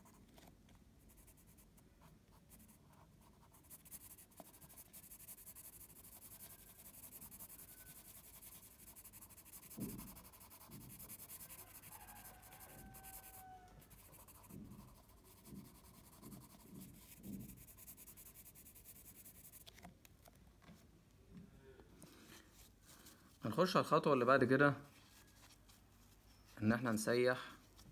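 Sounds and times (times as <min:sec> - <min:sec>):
pencil scratching on paper: 0:01.0 - 0:19.8.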